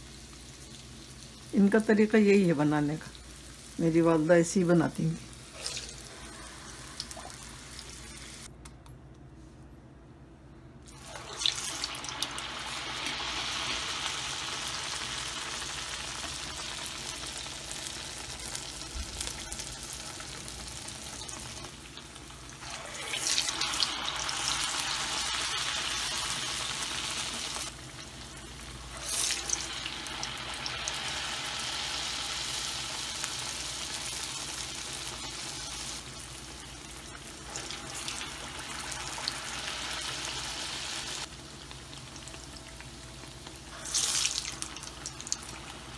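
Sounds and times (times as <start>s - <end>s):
fritters deep-frying in oil: 11.2s - 45.9s.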